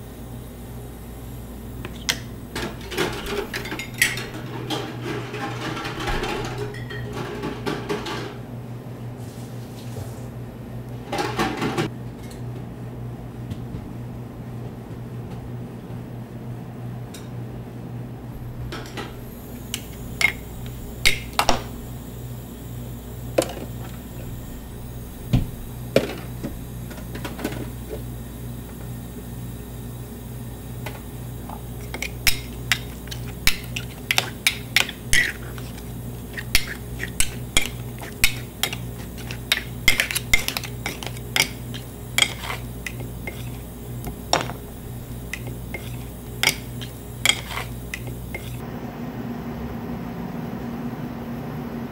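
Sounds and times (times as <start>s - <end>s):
steady low hum: 0.0s - 51.9s
metal spatulas clinking and scraping: 36.3s - 43.6s, 47.3s - 48.6s.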